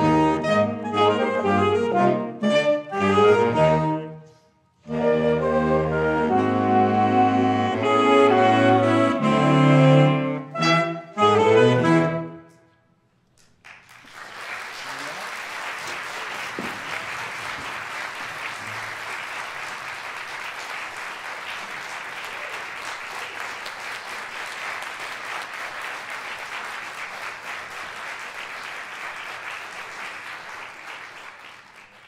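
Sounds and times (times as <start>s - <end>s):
audience applauding: 13.4s - 32.0s.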